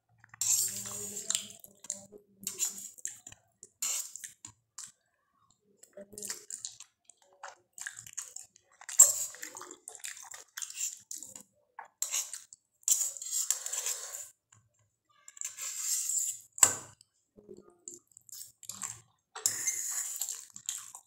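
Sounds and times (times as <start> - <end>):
fork scraping in a steel bowl: 0.4 - 1.4, 2.4 - 3.0, 9.0 - 9.6, 12.0 - 14.3, 15.4 - 16.5, 19.4 - 20.4
wet slurping: 7.5 - 11.4, 18.3 - 21.0.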